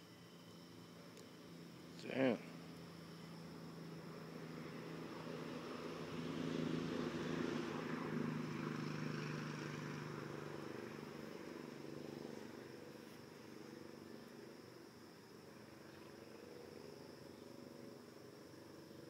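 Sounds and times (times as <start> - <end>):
thin high whine: 0.0 - 6.1.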